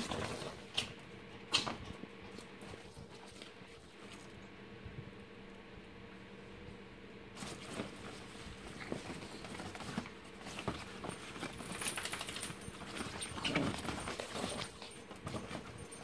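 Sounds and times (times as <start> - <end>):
dogs scuffling on fabric: 0.0 - 4.4, 7.3 - 16.0
collar tags jingling: 9.1 - 16.0.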